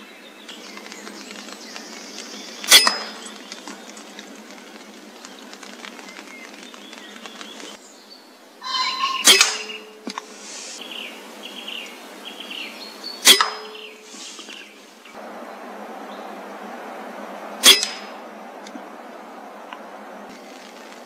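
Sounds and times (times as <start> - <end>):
air rifle shots: 9.2 - 9.8, 17.5 - 18.5.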